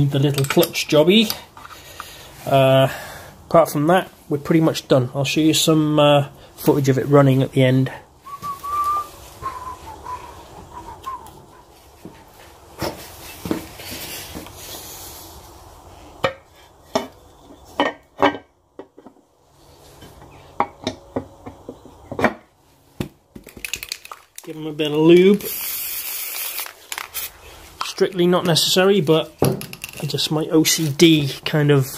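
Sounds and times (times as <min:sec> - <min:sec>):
clicks and knocks of engine parts: 0:00.2 - 0:02.1, 0:20.0 - 0:24.6.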